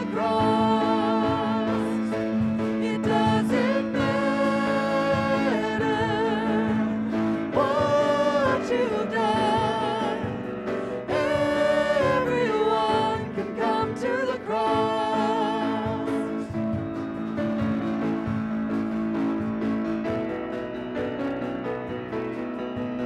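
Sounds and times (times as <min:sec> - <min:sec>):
vocal trio singing worship song: 0:00.0 - 0:16.8
instrumental accompaniment: 0:00.0 - 0:23.0.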